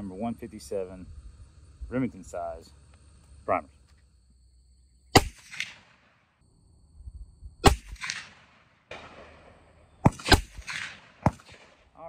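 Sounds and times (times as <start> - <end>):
rifle shots with echo: 5.1 - 6.3, 7.6 - 12.0.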